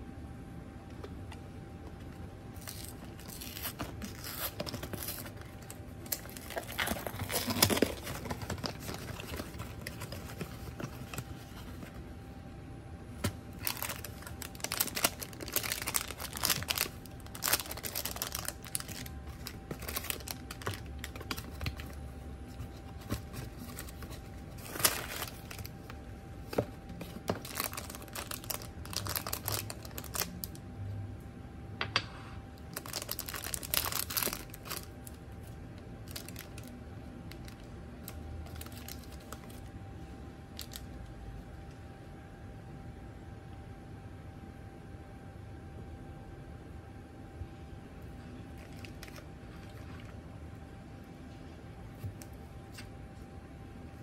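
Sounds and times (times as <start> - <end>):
foil paper wrappers crinkling: 2.5 - 12.0, 13.2 - 30.6, 32.7 - 39.7, 40.6 - 40.9
cardboard box rustling: 2.6 - 12.0, 14.6 - 25.7.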